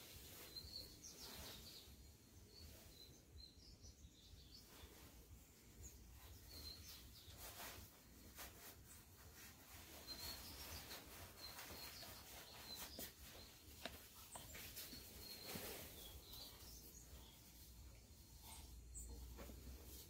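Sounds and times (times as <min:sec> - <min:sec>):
faint bird chirps: 0:00.0 - 0:20.0
fabric and paper rustling: 0:07.2 - 0:16.7.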